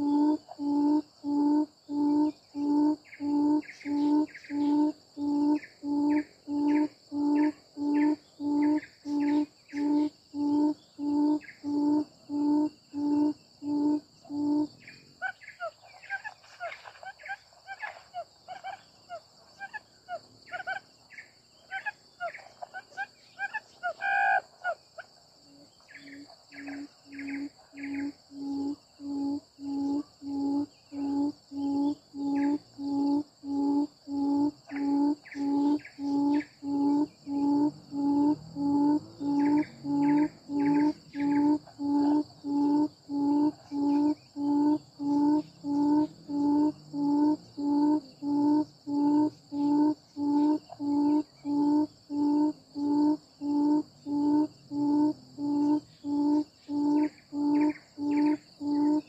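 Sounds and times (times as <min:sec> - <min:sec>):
high insect buzz: 0:00.0 - 0:59.0
quail calling: 0:21.6 - 0:25.1.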